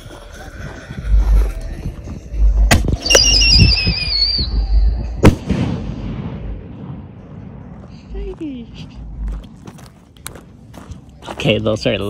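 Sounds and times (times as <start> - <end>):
firework warbling whistle: 3.0 - 5.2
firework crack: 5.2 - 7.6
firework bang: 5.2 - 7.7.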